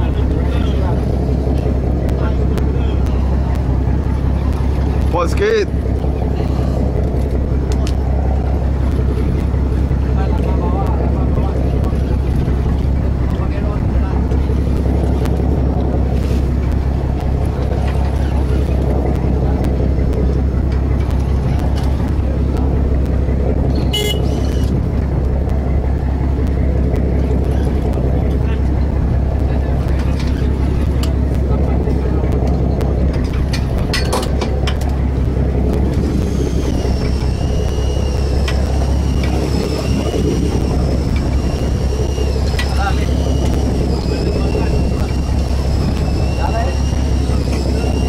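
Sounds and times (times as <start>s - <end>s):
boat engine humming: 0.0s - 48.0s
thin high whine: 35.8s - 48.0s.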